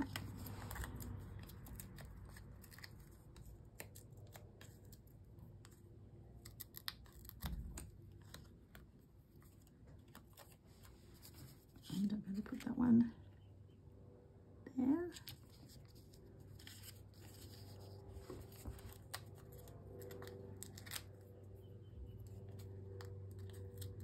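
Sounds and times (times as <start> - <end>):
paper rustling: 0.0 - 5.8, 15.2 - 21.5.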